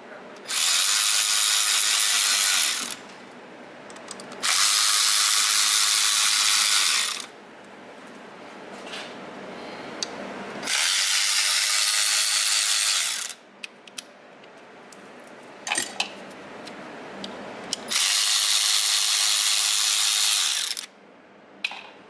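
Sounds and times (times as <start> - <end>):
electric ratchet running: 0.4 - 3.0, 4.4 - 7.3, 10.6 - 13.4, 17.9 - 20.9.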